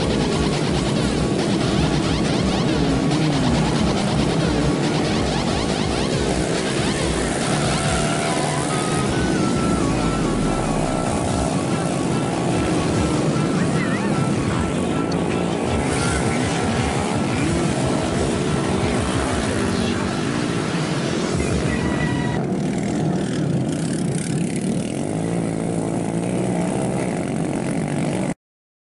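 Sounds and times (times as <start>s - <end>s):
motorcycle engines revving: 0.0s - 28.4s.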